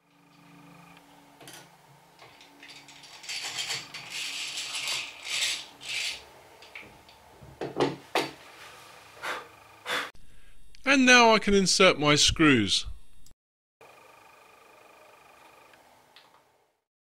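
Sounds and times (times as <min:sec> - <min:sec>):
hand drill whirring: 0:03.1 - 0:06.2.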